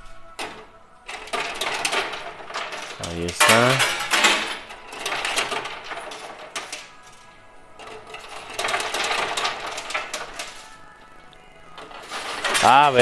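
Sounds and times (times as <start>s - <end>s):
coins clattering into tray: 1.1s - 7.2s, 7.8s - 10.7s, 11.8s - 13.0s.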